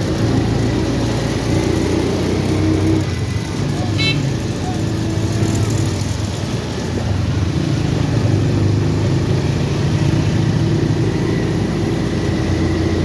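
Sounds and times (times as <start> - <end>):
car and motorcycle engines humming: 0.0 - 13.0.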